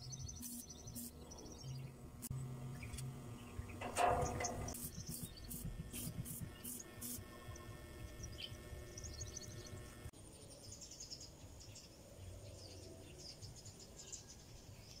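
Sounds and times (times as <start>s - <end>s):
birds chirping: 0.0s - 10.1s.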